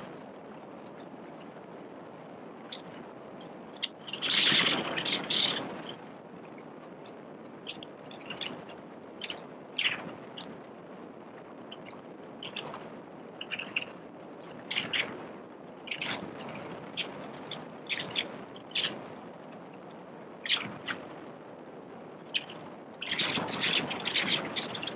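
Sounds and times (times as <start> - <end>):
distant traffic hum: 3.4 - 6.2
high bird chirps: 16.9 - 18.9.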